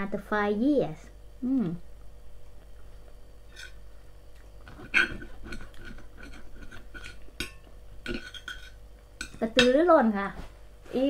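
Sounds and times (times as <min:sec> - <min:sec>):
knife and fork clinking on plate: 0:04.8 - 0:09.8.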